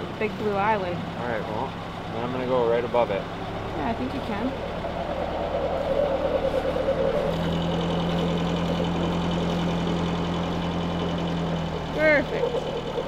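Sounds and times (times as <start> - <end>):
diesel engine running: 0.0 - 13.0
steady tone: 3.0 - 13.0.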